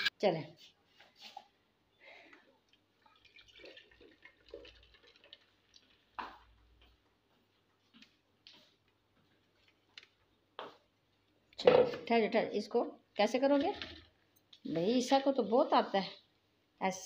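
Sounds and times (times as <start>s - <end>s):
juice trickling into a jug: 2.3s - 6.7s.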